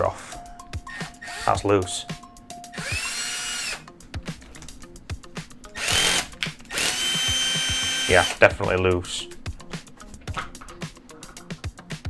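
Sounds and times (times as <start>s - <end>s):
cordless drill whirring: 0.9s - 1.6s, 2.7s - 3.9s, 5.8s - 8.4s.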